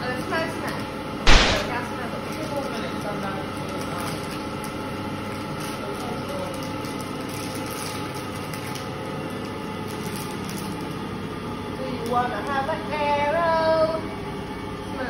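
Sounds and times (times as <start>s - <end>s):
mechanical background hum: 3.3s - 15.0s.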